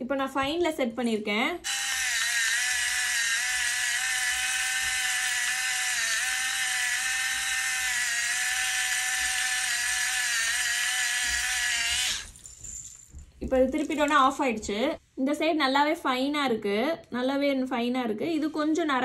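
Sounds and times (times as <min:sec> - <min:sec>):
electric pepper grinder whining: 0:01.6 - 0:12.4.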